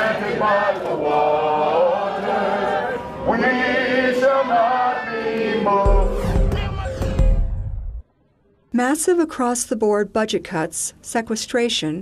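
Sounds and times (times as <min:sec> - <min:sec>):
voices chanting in unison: 0:00.0 - 0:07.2.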